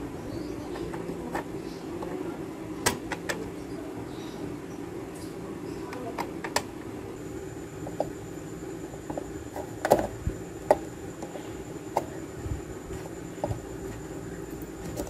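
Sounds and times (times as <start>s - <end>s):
steady low hum: 0.0s - 15.0s
electronic parts clicking: 5.9s - 6.8s, 7.7s - 12.2s.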